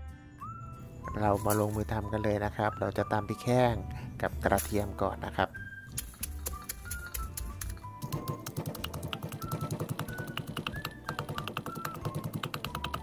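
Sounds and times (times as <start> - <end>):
background music: 0.0 - 13.0
pestle pounding in mortar: 6.1 - 13.0.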